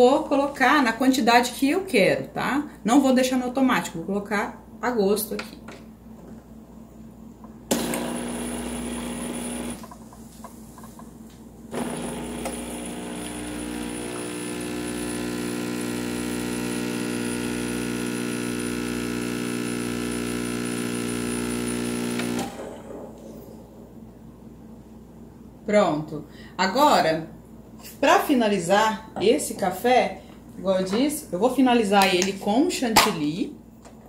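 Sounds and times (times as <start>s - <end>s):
espresso machine pump buzzing: 7.7s - 10.0s, 11.7s - 22.8s.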